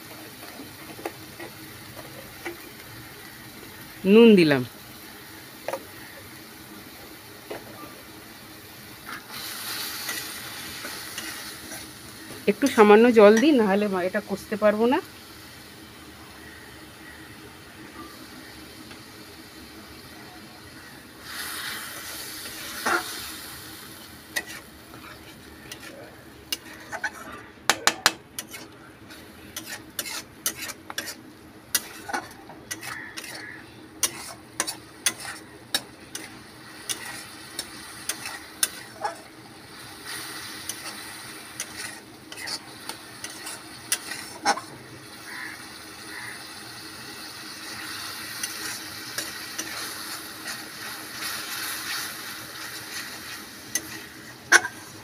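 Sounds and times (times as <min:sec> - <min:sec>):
food sizzling: 0:00.0 - 0:55.0
metal spatula scraping a pan: 0:21.4 - 0:23.3, 0:24.3 - 0:27.4, 0:28.4 - 0:39.3, 0:40.0 - 0:45.4, 0:47.6 - 0:55.0.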